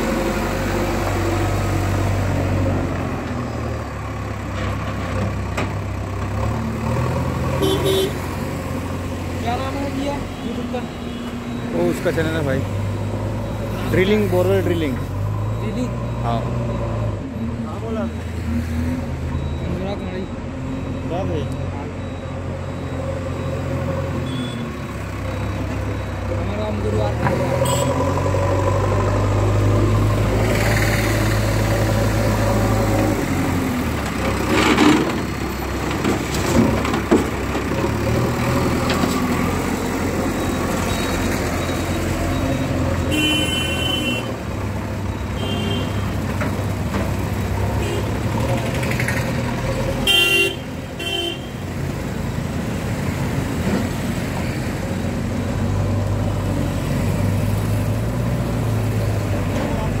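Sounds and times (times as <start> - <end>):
vehicle horn honking: 7.6 - 8.2, 27.6 - 28.0, 43.1 - 44.3, 45.4 - 46.1, 47.8 - 48.1, 50.0 - 51.6.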